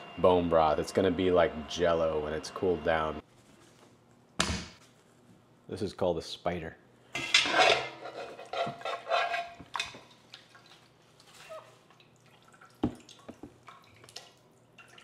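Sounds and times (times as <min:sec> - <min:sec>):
wire strainer scraping a pot: 0:07.2 - 0:09.6
broth splashing and dripping: 0:10.1 - 0:15.0.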